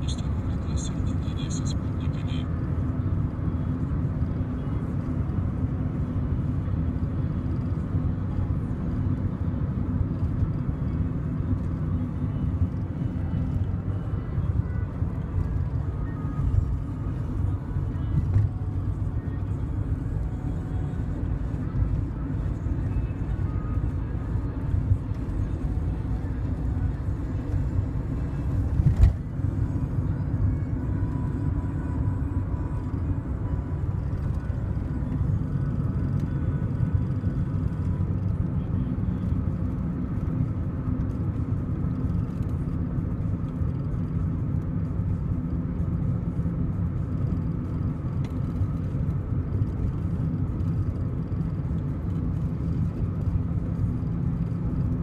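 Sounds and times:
car road and engine rumble: 0.0 - 55.0.

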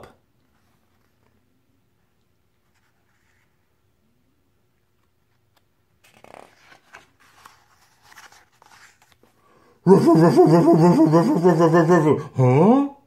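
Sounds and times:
paper rustling and crinkling: 6.0 - 9.4.

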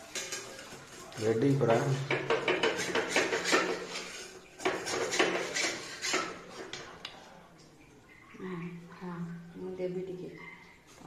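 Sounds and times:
spatula scraping a wok: 0.0 - 6.7.

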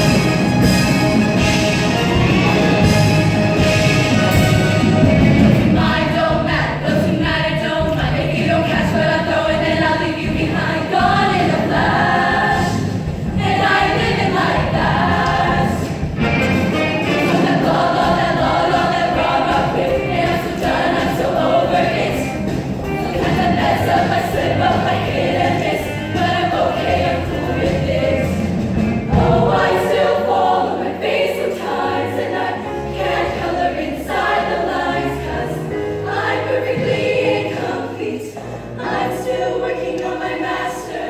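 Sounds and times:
female choir singing: 5.4 - 16.1, 17.0 - 28.4, 29.0 - 41.0.

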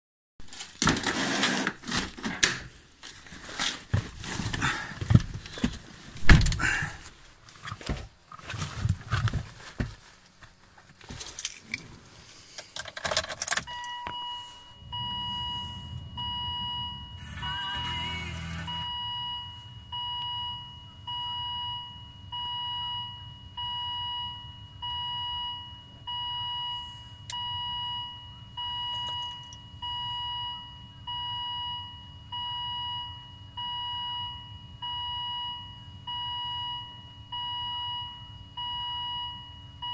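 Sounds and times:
keys rattling: 12.6 - 13.8
dashboard warning chime beeping: 13.6 - 39.9
low hum: 13.7 - 24.8.

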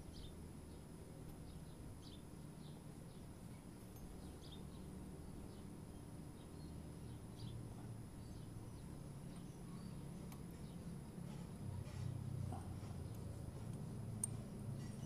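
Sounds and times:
bird chirps: 5.5 - 11.4.

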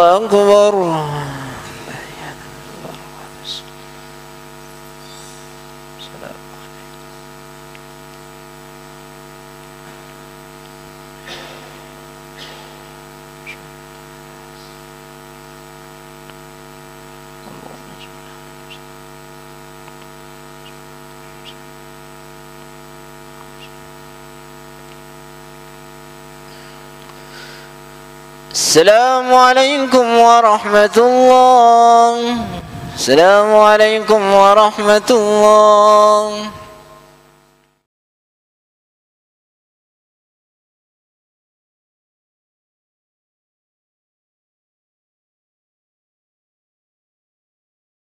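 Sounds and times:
electrical mains hum: 0.0 - 37.9.

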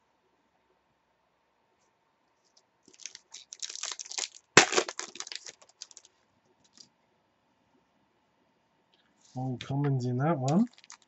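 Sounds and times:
wrapper crinkling and tearing: 2.9 - 6.1, 10.5 - 11.0
cards pulled out: 3.0 - 6.1, 10.5 - 11.0.

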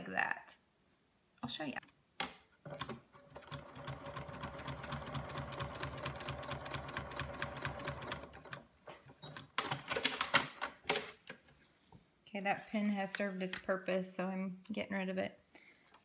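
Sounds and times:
sewing machine stitching: 2.6 - 10.6.

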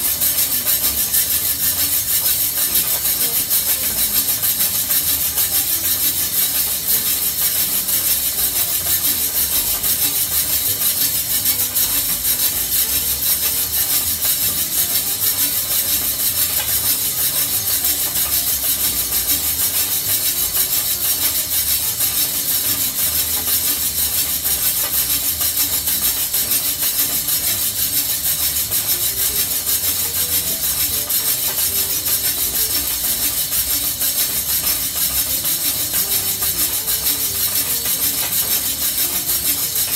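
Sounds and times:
coffee beans rattling in drum roaster: 0.0 - 39.9.

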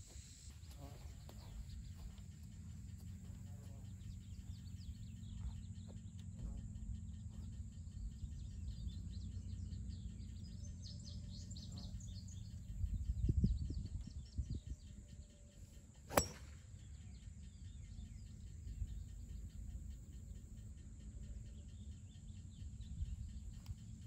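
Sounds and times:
birds chirping: 0.0 - 24.0
wind on microphone: 12.6 - 15.0.

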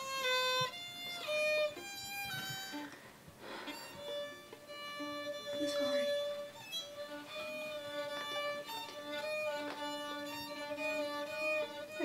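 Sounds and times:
slow bowed violin music: 0.0 - 12.0.

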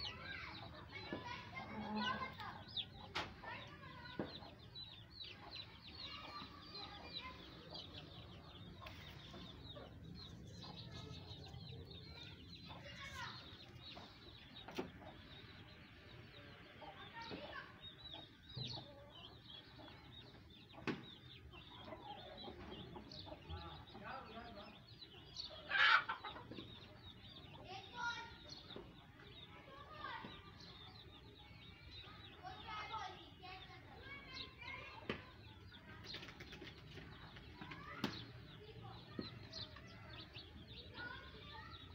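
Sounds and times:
chickens clucking softly: 0.1 - 24.0, 25.0 - 27.7.

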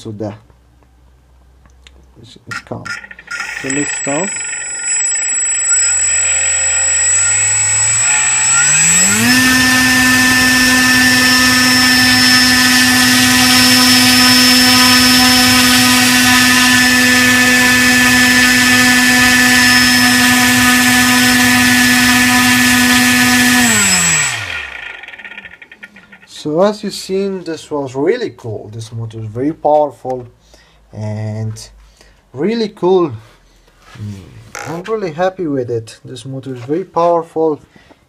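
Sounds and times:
electric motor spinning propeller: 2.9 - 26.3.

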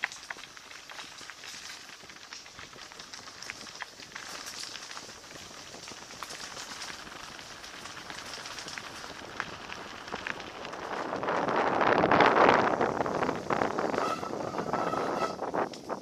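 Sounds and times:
small clicks and rattles: 0.0 - 11.5
bike tyres crunching on gravel: 0.0 - 16.0.

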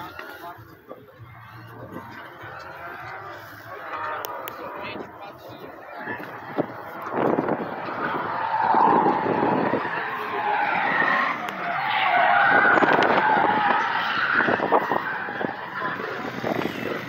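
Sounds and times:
car engine: 0.0 - 17.0
car tyres squealing: 1.2 - 17.0.

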